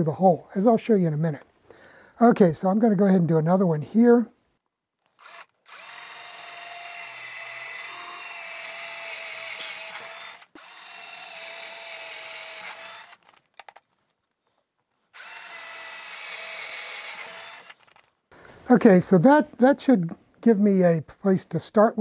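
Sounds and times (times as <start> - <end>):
cordless drill whining: 5.1 - 13.4, 15.1 - 18.1.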